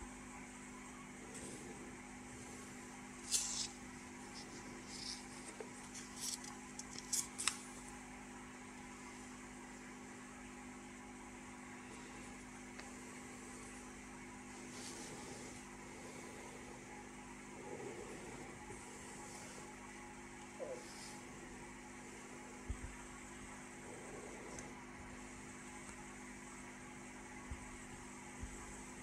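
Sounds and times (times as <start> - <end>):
low electrical hum: 0.0 - 29.0
paper rustling: 3.2 - 7.8.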